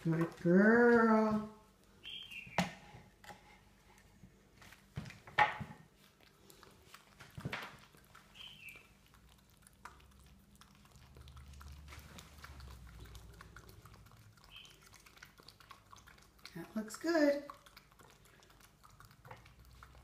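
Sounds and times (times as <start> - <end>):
raccoon lapping and chewing: 0.0 - 20.0.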